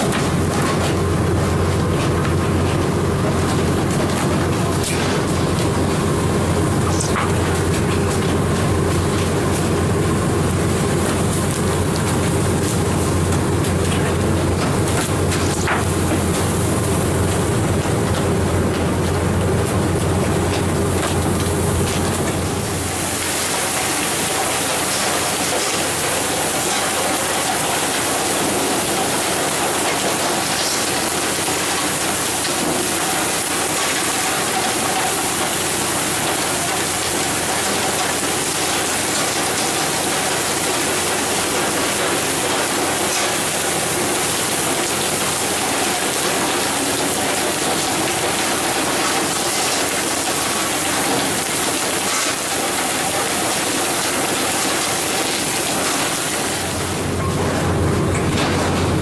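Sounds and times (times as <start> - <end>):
faint machine hum: 0.0 - 59.0.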